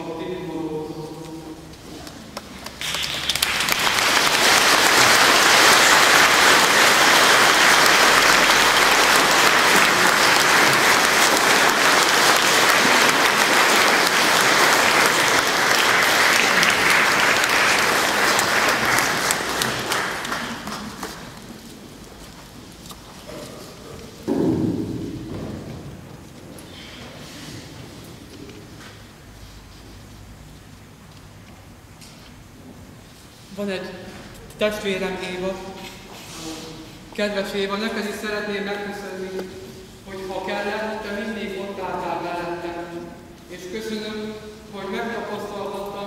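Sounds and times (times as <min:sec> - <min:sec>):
congregation applauding: 0:02.3 - 0:22.0.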